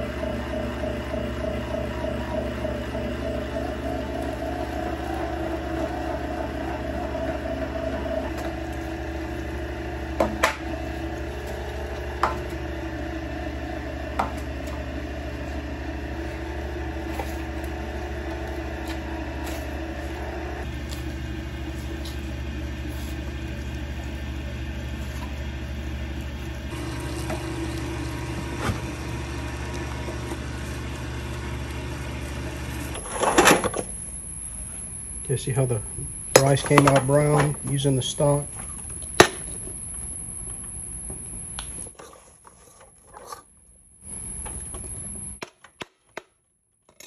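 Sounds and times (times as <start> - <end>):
electric meat grinder motor hum: 0.0 - 34.0.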